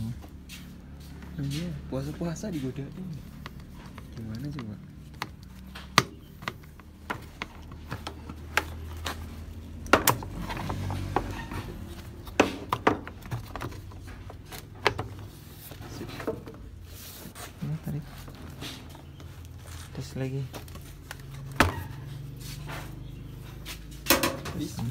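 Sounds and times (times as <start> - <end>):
plastic clicks and knocks: 3.4 - 9.2.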